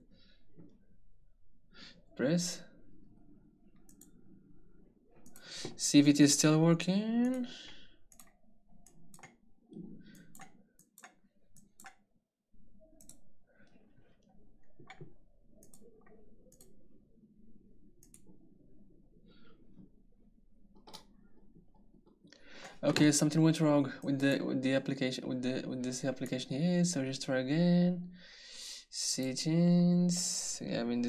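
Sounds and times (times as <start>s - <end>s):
small buttons clicking: 8.1s - 9.4s, 10.1s - 12.0s, 13.0s - 13.2s.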